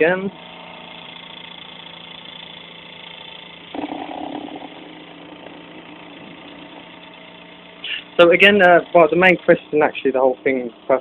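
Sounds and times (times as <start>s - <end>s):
small electric motor humming: 0.0s - 11.0s
louder rough grinding: 1.1s - 9.9s.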